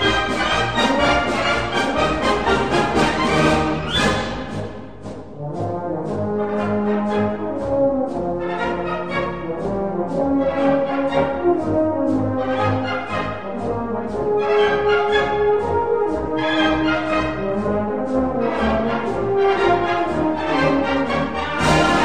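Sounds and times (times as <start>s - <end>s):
brass orchestral march: 0.0s - 22.0s.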